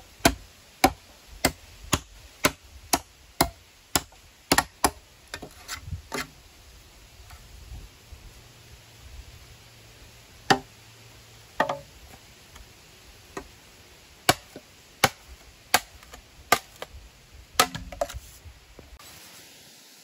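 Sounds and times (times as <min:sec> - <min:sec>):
machete chopping bamboo: 0:00.2 - 0:06.3, 0:10.5 - 0:10.7, 0:11.6 - 0:11.9, 0:14.2 - 0:16.9, 0:17.6 - 0:18.2.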